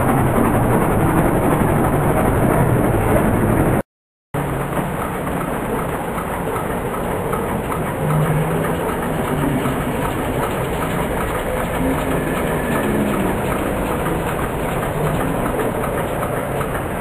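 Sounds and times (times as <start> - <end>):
vehicle engines running and idling: 4.4 - 17.0.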